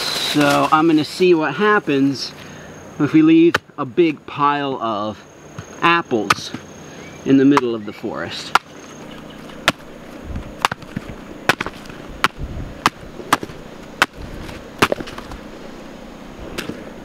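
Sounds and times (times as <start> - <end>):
serrated blade chopping apples: 5.6 - 6.7, 7.4 - 7.8, 8.4 - 15.4.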